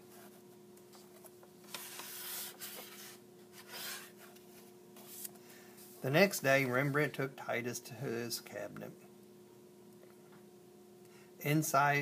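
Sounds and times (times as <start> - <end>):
faint steady hum: 0.0 - 12.0
paper page rustling: 0.9 - 5.4.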